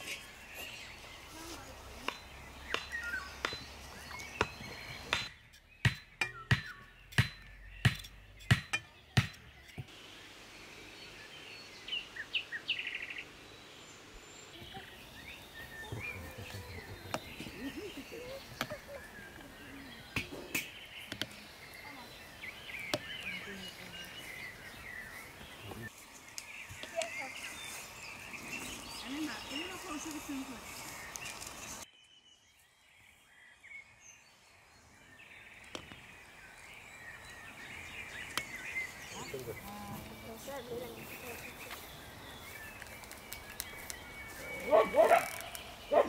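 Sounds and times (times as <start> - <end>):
birds chirping: 0.0 - 46.0
hammer knocking wooden stake: 2.0 - 3.7, 4.3 - 9.9.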